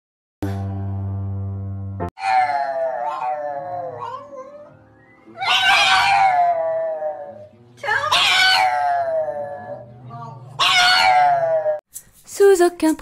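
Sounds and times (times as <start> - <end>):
dog howling: 2.2 - 11.8.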